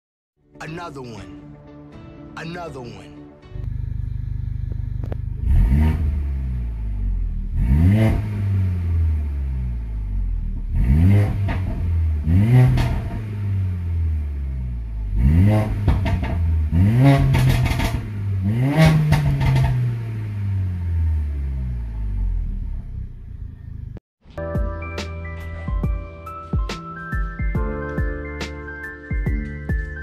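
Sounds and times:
car engine idling and revving: 3.6s - 24.0s
exhaust crackles: 3.6s - 24.0s.

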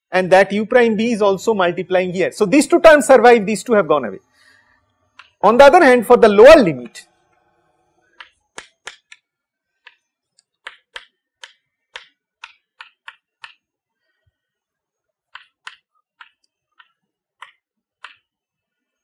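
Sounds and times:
chalk tapping on chalkboard: 8.2s - 9.2s, 10.6s - 13.6s, 15.3s - 18.3s.

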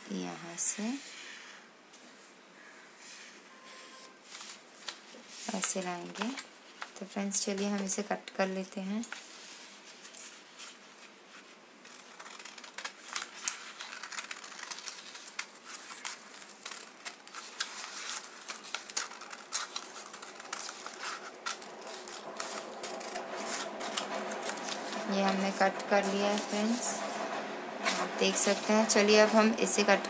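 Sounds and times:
scissors cutting paper: 11.9s - 27.0s.

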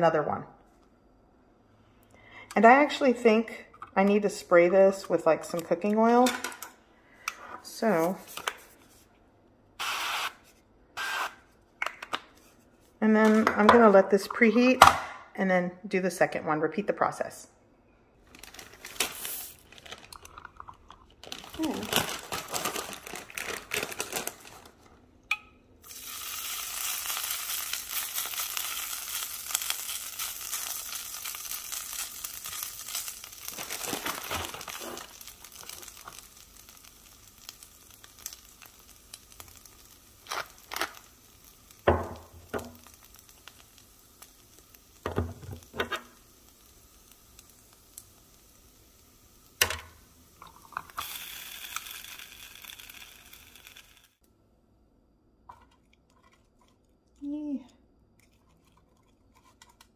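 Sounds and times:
hash browns sizzling: 25.8s - 54.2s.

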